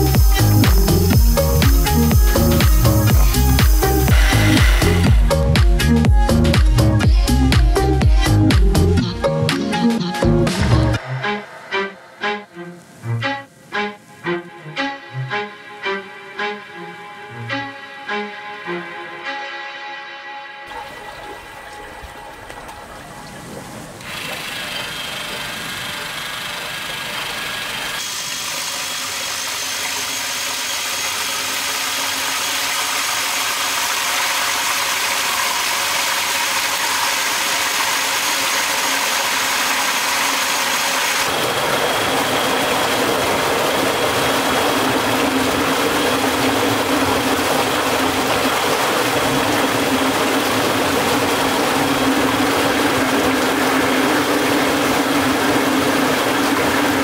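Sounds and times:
water rushing through sluice gate: 0:00.0 - 0:06.0, 0:10.6 - 0:18.8, 0:20.7 - 0:57.0
steady low hum: 0:00.0 - 0:09.1.

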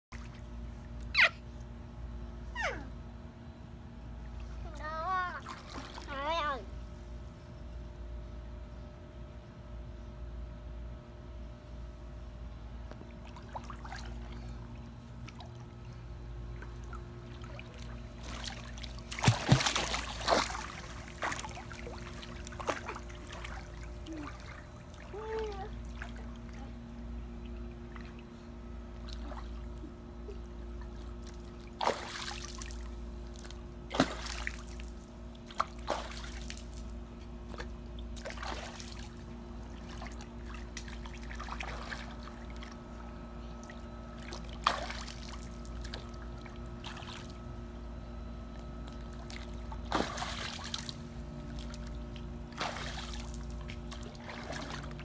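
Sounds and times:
steady hum: 0:00.1 - 0:55.0
toddler splashing in water: 0:05.0 - 0:06.4, 0:17.4 - 0:26.6.

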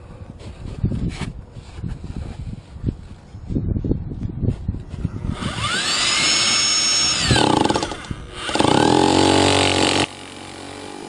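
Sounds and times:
hammer drill motor running: 0:05.3 - 0:11.0.

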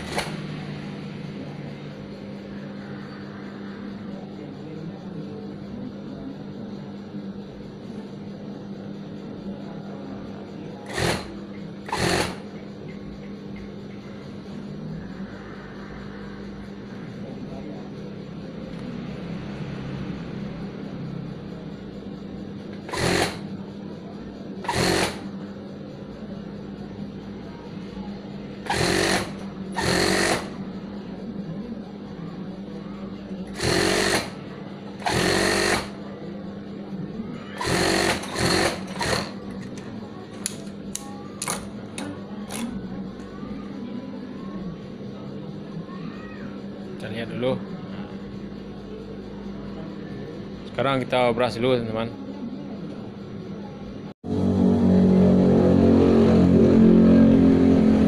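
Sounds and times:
sewing machine stitching: 0:00.0 - 0:00.5, 0:10.9 - 0:12.4, 0:22.9 - 0:23.4, 0:24.6 - 0:25.2, 0:28.6 - 0:30.5, 0:33.5 - 0:34.4, 0:35.0 - 0:36.0, 0:37.6 - 0:39.4
sewing machine motor humming: 0:00.0 - 0:00.8, 0:10.8 - 0:12.5, 0:22.8 - 0:23.5, 0:24.6 - 0:25.3, 0:28.6 - 0:30.6, 0:33.5 - 0:34.4, 0:35.0 - 0:36.0, 0:37.6 - 0:42.7
steady hum: 0:00.0 - 0:58.0.

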